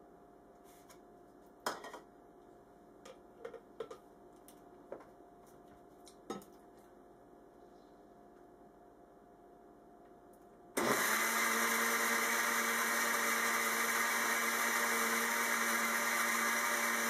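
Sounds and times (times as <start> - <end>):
faint steady hum: 0.0 - 10.8.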